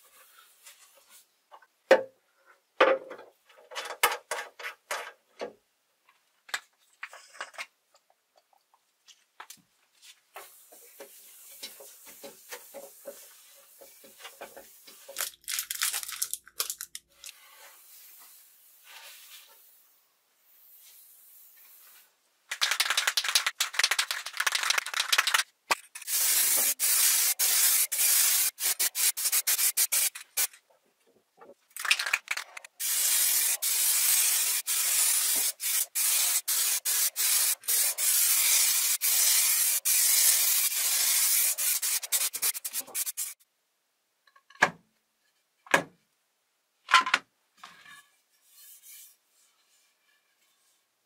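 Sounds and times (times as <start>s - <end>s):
spray coating hissing: 17.4s - 19.9s, 26.0s - 30.5s, 32.8s - 43.4s.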